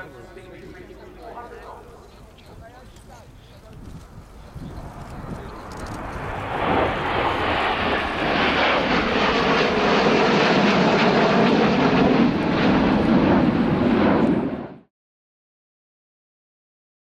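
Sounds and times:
jets flying past: 0:04.0 - 0:14.9.

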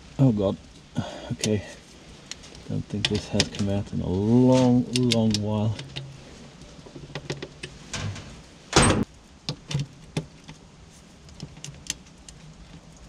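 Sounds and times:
metal clunk: 0:07.0 - 0:09.1.

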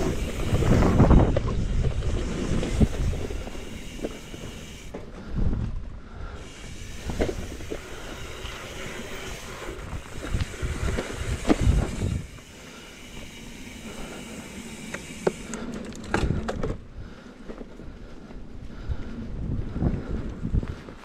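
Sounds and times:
wind rushing on microphone: 0:00.0 - 0:03.8, 0:05.2 - 0:12.4, 0:18.6 - 0:21.0
bike tyre rumble: 0:00.0 - 0:21.0.

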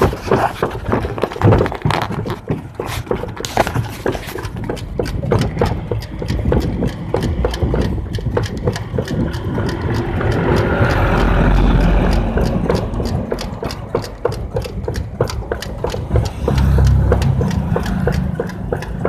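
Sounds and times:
footsteps: 0:00.0 - 0:18.9
bus engine running: 0:03.9 - 0:19.0.

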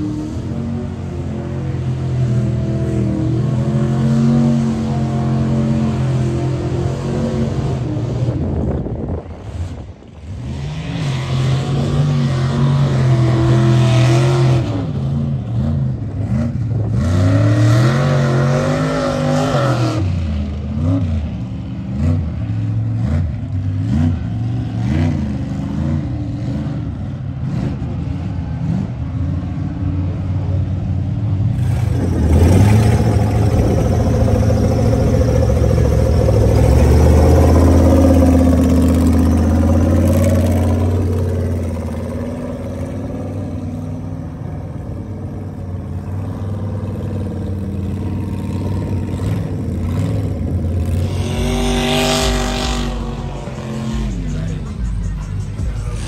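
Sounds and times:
buggy engine running steadily: 0:00.0 - 0:56.0
truck engines revving: 0:00.0 - 0:56.0.

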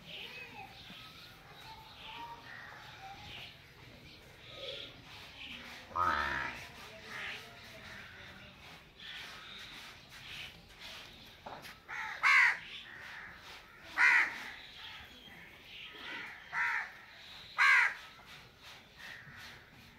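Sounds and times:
crow cawing: 0:11.9 - 0:13.3, 0:13.9 - 0:14.4, 0:16.1 - 0:16.9, 0:17.6 - 0:18.0.

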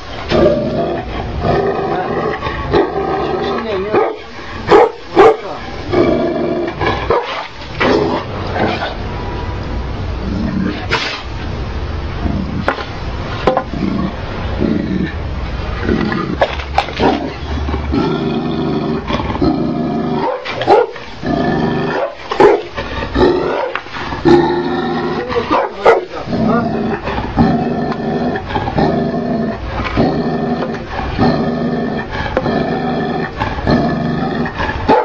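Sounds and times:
dog growling: 0:00.3 - 0:04.7, 0:05.3 - 0:09.0, 0:13.4 - 0:15.2, 0:15.8 - 0:35.0
dog barking: 0:04.0 - 0:05.6, 0:07.1 - 0:07.4, 0:20.2 - 0:21.0, 0:21.9 - 0:22.7, 0:25.5 - 0:26.1.

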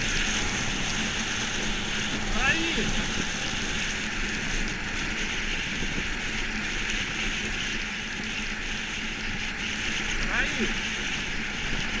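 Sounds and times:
wind buffeting microphone: 0:00.0 - 0:08.6.

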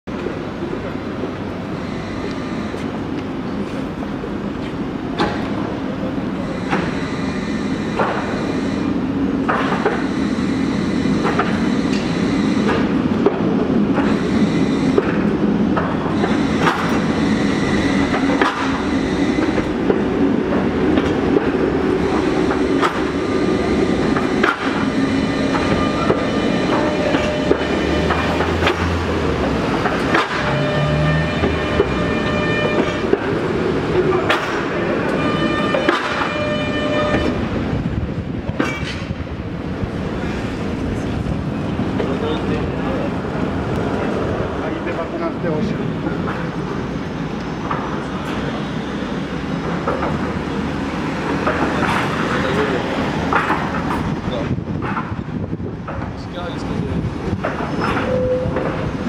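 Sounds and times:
tram rumble: 0:00.0 - 0:59.0
tram wheels clacking over rails: 0:00.1 - 0:59.0
faint wheel squeal: 0:57.7 - 0:58.6.

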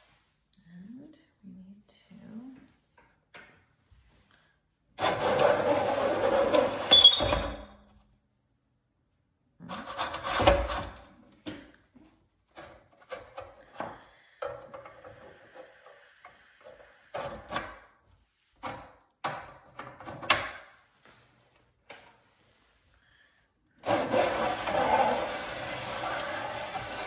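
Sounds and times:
objects knocking and scraping: 0:09.7 - 0:22.4.

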